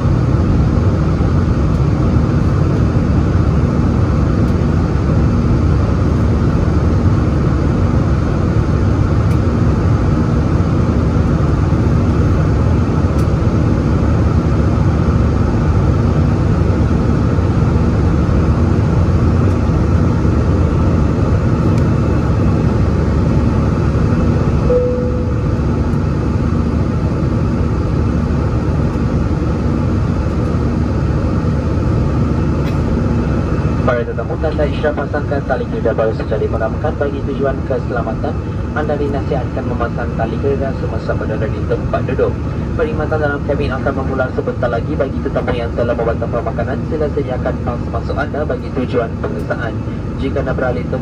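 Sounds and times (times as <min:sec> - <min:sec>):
faint hum: 0:00.0 - 0:51.0
jet engines droning: 0:00.0 - 0:51.0
short cabin tone: 0:24.7 - 0:26.0.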